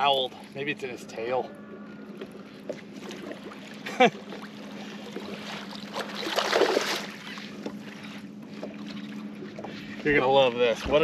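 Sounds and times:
boat low hum: 0:00.0 - 0:11.0
water noise: 0:00.0 - 0:11.0
wind: 0:00.0 - 0:11.0.

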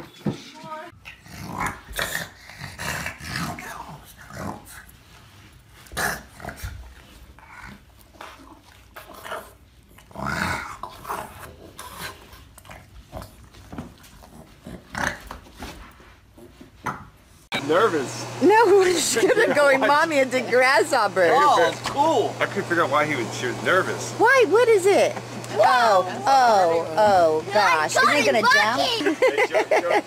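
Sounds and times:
dog growling and grunting: 0:01.0 - 0:04.8, 0:09.0 - 0:12.2.

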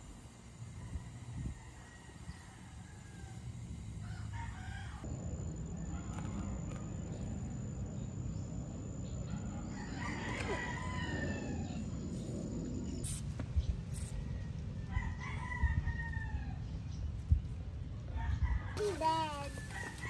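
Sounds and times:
rooster crowing: 0:00.7 - 0:05.1, 0:09.4 - 0:12.0, 0:18.1 - 0:20.0.

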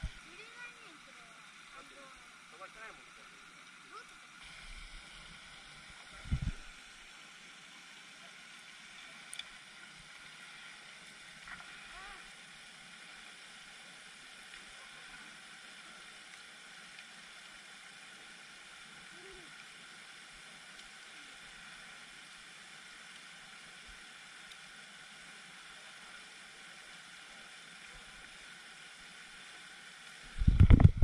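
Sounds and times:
fountain spray splashing: 0:00.0 - 0:10.4, 0:11.1 - 0:21.7.

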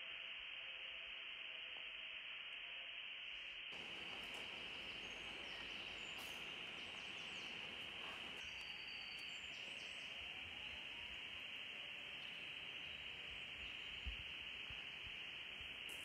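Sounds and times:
steady background hiss: 0:00.0 - 0:16.0
faint high chirps: 0:03.8 - 0:16.0.

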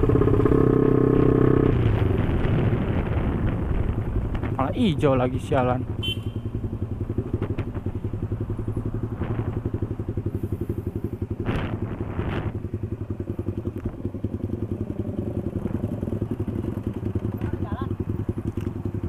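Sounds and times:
motorcycle engine puttering: 0:06.3 - 0:19.0.

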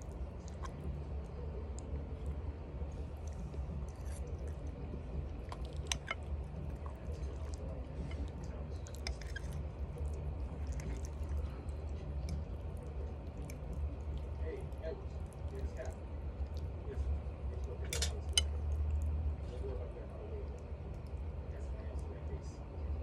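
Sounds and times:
person chewing: 0:00.0 - 0:14.4
steady low hum: 0:00.0 - 0:23.0.

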